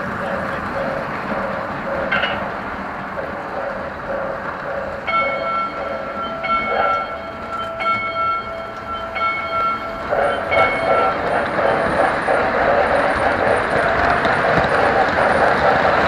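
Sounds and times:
ringing bell-like tone: 0.0s - 2.5s, 3.2s - 12.5s
model train running on track: 0.0s - 16.0s.

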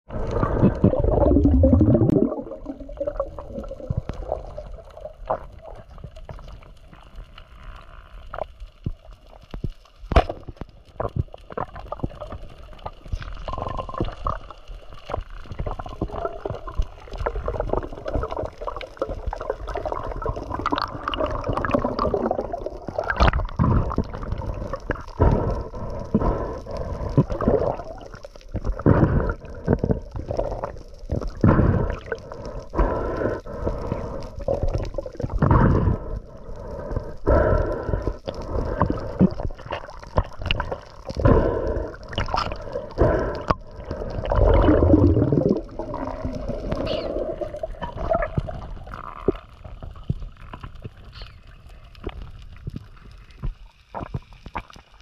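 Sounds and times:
water gurgling and sloshing: 0.0s - 9.1s, 10.2s - 55.0s
bubbling pops and knocks: 0.5s - 4.6s, 15.6s - 24.2s, 44.2s - 47.0s.

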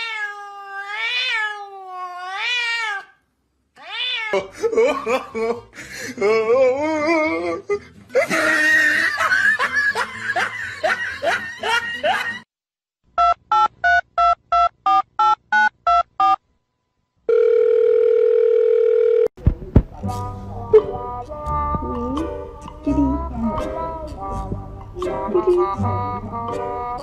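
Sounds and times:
telephone dial tone: 17.3s - 19.3s.

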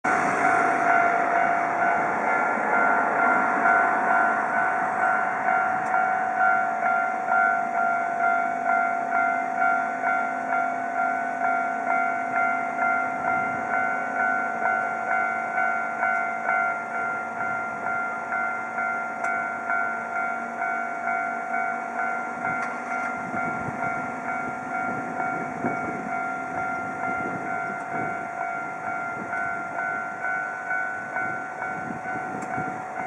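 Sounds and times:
level crossing warning bell: 0.0s - 33.0s
vehicle passing: 0.1s - 5.8s.

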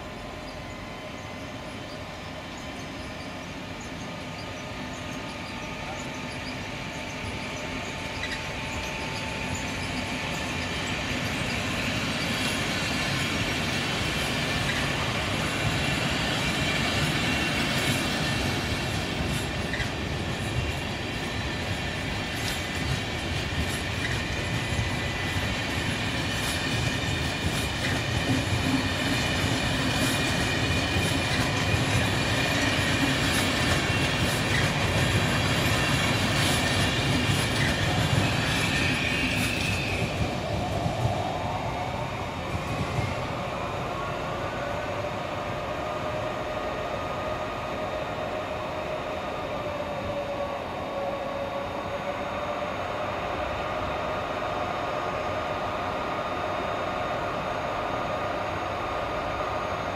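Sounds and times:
high-pitched wheel squeal: 1.9s - 13.1s, 31.0s - 40.8s
train wheels clicking over joints: 3.8s - 41.3s.

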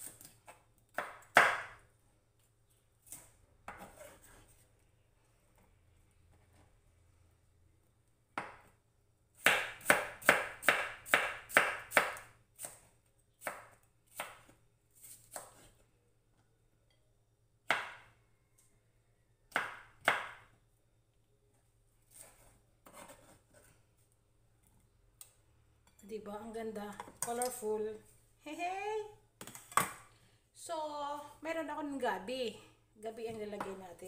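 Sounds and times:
knife chopping on wooden board: 0.1s - 1.8s, 9.4s - 15.7s, 19.5s - 20.4s.

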